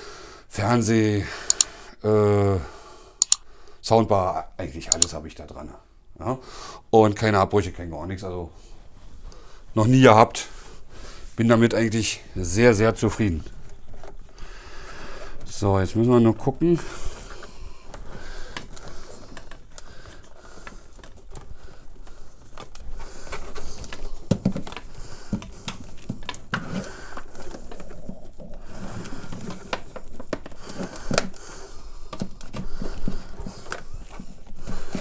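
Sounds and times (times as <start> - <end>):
cables rummaged with clicks: 11.7 - 35.0.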